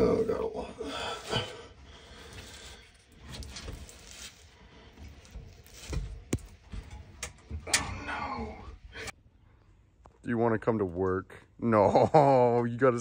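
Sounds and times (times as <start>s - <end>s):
hand tool scraping: 2.1s - 7.2s.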